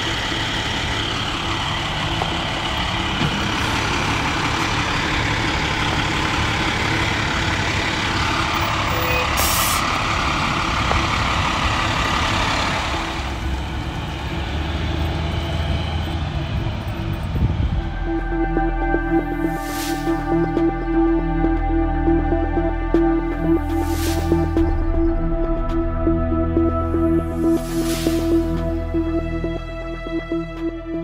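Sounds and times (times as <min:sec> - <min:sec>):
diesel engine rumbling: 0:00.0 - 0:31.0
air brake hiss: 0:09.3 - 0:09.9, 0:19.6 - 0:20.2, 0:23.8 - 0:24.4, 0:27.6 - 0:28.4.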